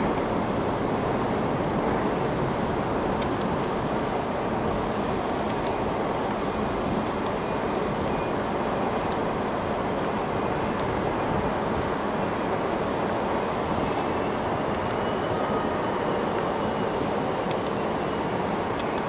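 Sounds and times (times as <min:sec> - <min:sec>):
wind blowing across microphone: 0:00.0 - 0:19.0.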